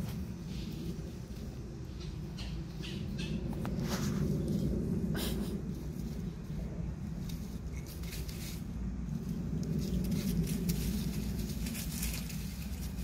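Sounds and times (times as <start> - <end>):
low rumble: 0.0 - 13.0
animals scuffling on dry leaves: 2.7 - 13.0.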